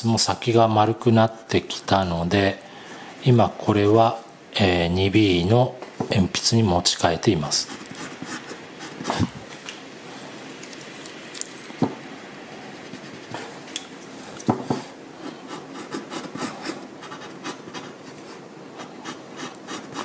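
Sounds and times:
pencil scratching on paper: 7.6 - 9.2, 12.5 - 13.5, 15.2 - 20.0.

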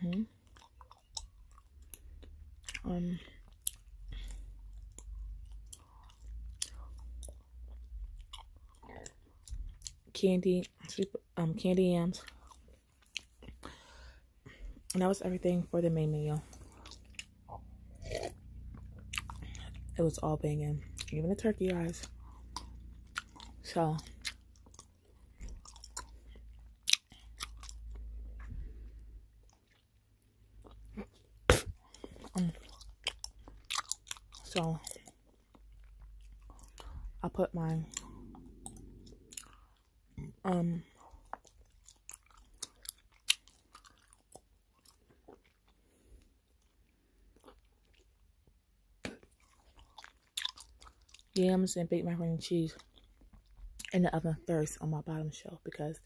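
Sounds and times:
person chewing gum wet smacks: 0.1 - 11.1, 12.2 - 13.7, 16.5 - 20.0, 20.8 - 45.8, 46.4 - 51.4, 52.8 - 54.0
gum chewing mouth smacks: 16.5 - 19.9, 30.6 - 37.0, 37.9 - 40.3, 49.0 - 51.4.

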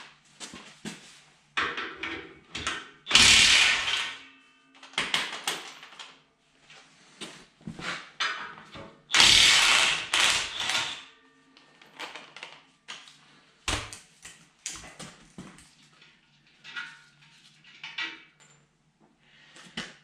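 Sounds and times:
metal parts clinking and clanking: 1.6 - 6.2
impact wrench hammering: 3.1 - 4.2, 9.1 - 11.0.

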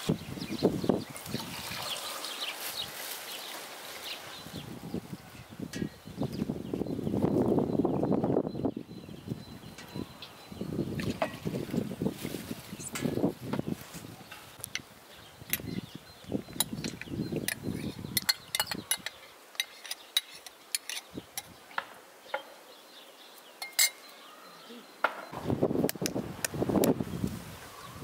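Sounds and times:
spoons clinking on glass bowls: 16.5 - 21.5, 23.6 - 24.1.

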